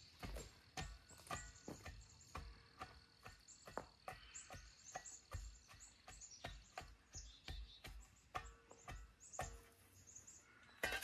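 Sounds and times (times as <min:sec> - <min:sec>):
dull thuds of tamping soil: 0:00.0 - 0:11.0
faint bird chirps: 0:00.0 - 0:11.0.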